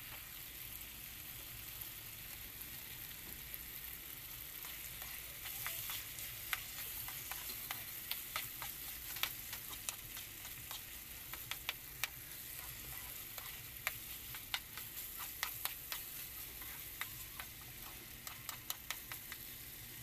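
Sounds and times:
meat sizzling in a pan: 0.0 - 20.0
utensil clicking against pan: 4.6 - 19.6.

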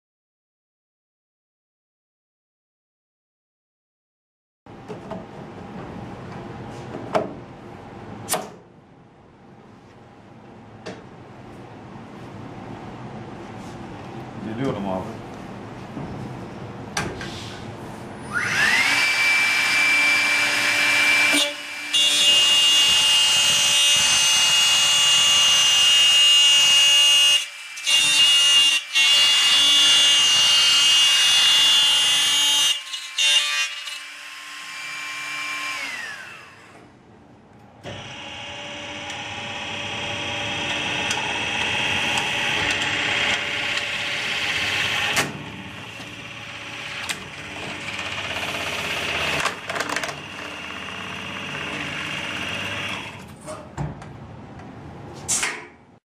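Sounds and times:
router bit cutting screech: 18.3 - 25.6
router motor whine: 18.3 - 36.8, 37.8 - 53.2.

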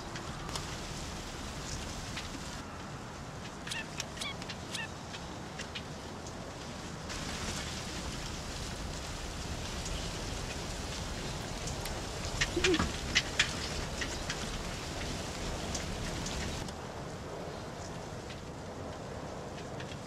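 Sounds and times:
match flame crackles: 0.5 - 2.6.

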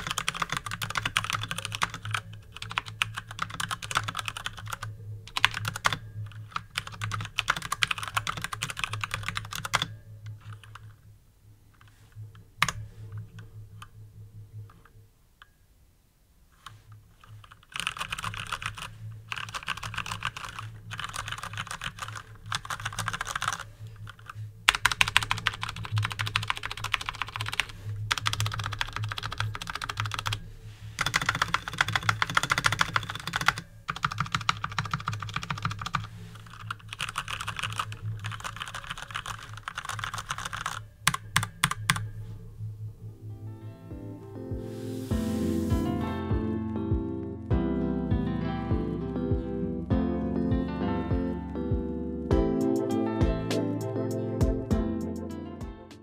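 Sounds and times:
typing on mechanical keyboard: 0.0 - 11.0, 16.6 - 30.4, 31.0 - 42.1.

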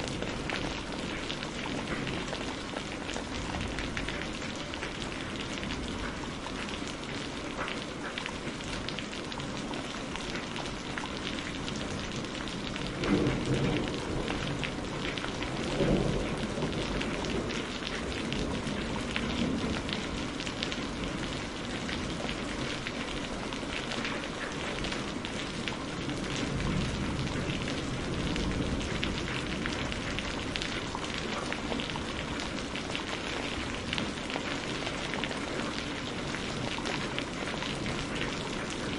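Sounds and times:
heavy rain pouring off roof: 0.0 - 38.9
thunder rumbling: 12.0 - 20.2.

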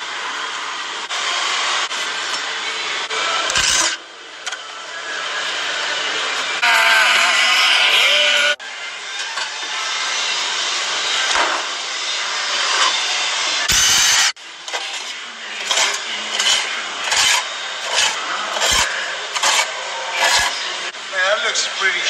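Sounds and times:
rough scraping noise: 14.7 - 20.7.

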